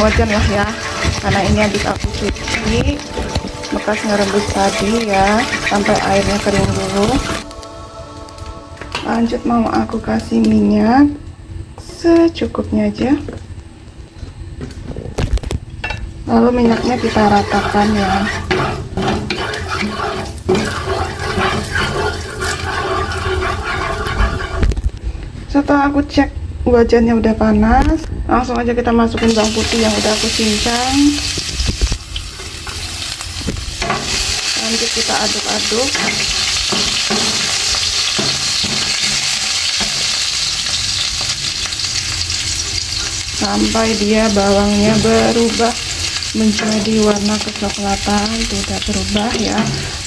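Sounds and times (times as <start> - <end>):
garlic sizzling in hot oil: 0.0 - 10.8, 16.4 - 24.8, 29.2 - 50.0
oil hissing in a wok: 29.3 - 43.8, 45.5 - 50.0.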